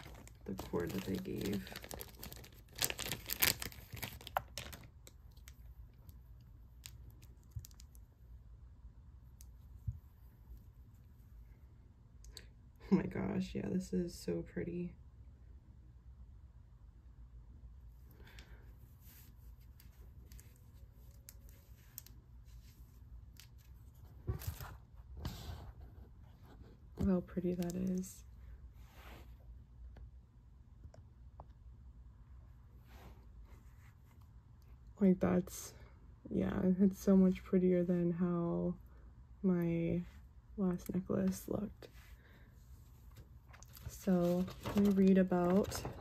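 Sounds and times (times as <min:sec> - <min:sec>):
necklace rustling and clicking: 0:00.0 - 0:08.2, 0:19.0 - 0:24.8
low room hum: 0:00.0 - 0:46.0.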